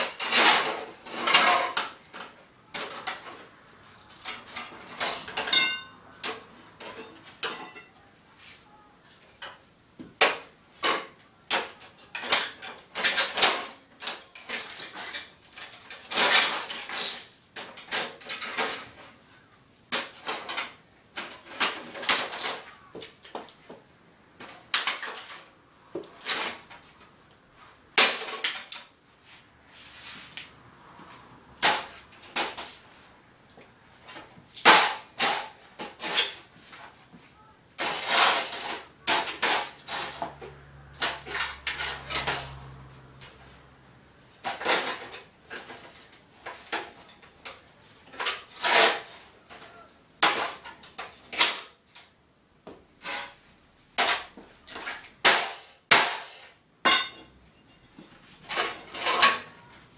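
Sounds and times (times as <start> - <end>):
broken pieces clattering: 0.0 - 3.4, 10.2 - 19.2, 24.4 - 25.5, 28.0 - 29.0, 37.8 - 40.4, 44.3 - 52.1, 54.0 - 59.6
hammer smashing computer case: 28.0 - 28.8, 34.6 - 36.3, 54.0 - 57.2.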